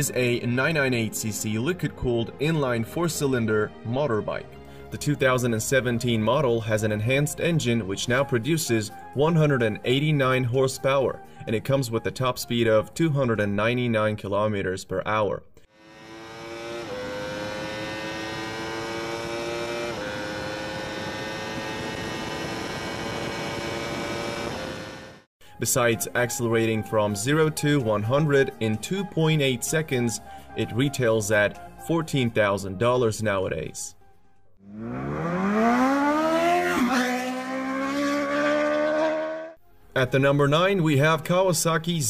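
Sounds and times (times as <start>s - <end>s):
motorcycle engine at full throttle: 15.8s - 25.3s, 34.7s - 39.6s.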